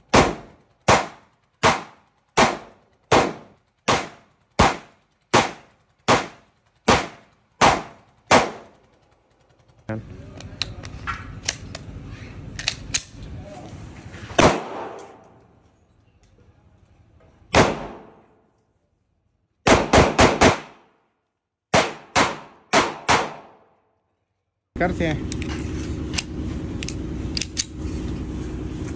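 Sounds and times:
pistol gunshots echoing: 0:00.1 - 0:08.7, 0:14.4 - 0:15.2, 0:17.5 - 0:18.3, 0:19.6 - 0:20.9, 0:21.7 - 0:23.7
pistol metallic clicks: 0:12.5 - 0:13.3, 0:26.2 - 0:27.8.

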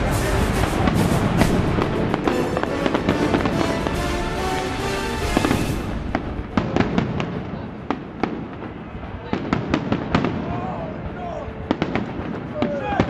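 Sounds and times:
music playing: 0:00.0 - 0:06.8
fireworks bangs and bursts: 0:00.0 - 0:13.0.

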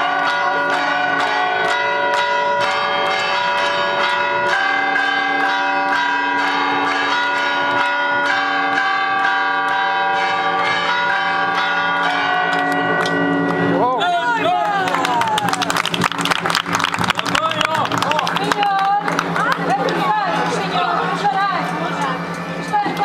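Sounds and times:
bells ringing in a peal: 0:00.0 - 0:23.0.

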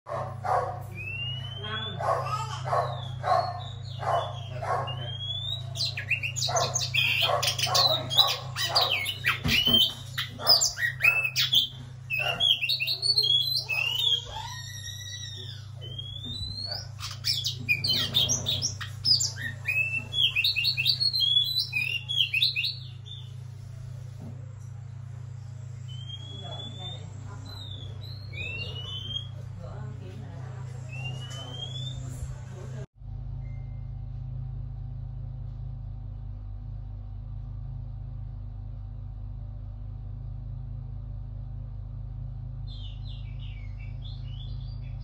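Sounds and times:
bird singing whistled notes: 0:00.9 - 0:02.0, 0:03.0 - 0:23.3, 0:25.9 - 0:29.4, 0:30.9 - 0:32.1.

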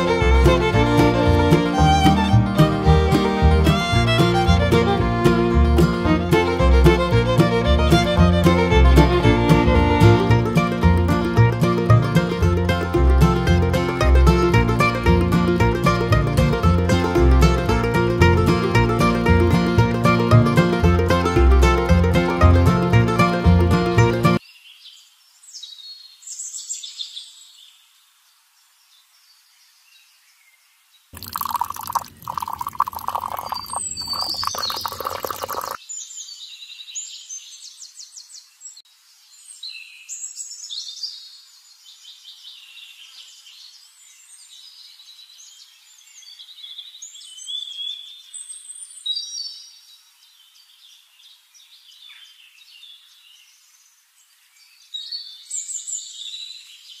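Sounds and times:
small birds chirping: 0:29.0 - 0:38.8
water splashing and pouring: 0:31.2 - 0:35.8.

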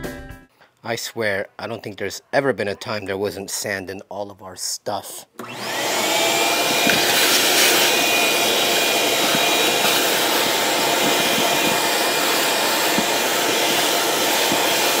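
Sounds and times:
shop vacuum running: 0:05.4 - 0:15.0.

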